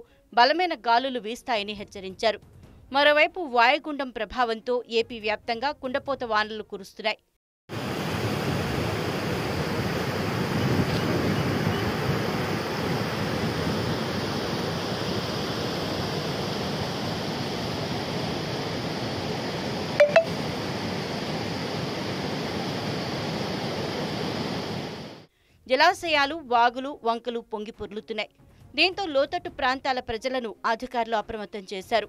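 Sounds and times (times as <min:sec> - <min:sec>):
floodwater rushing: 0:07.7 - 0:25.1.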